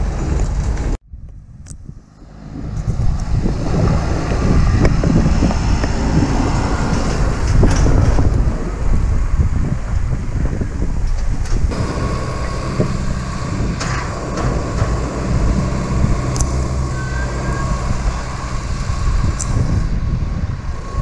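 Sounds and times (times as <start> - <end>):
tractor engine under load: 2.0 - 21.0
trailer knocks and clatters: 2.3 - 10.1, 10.9 - 19.8.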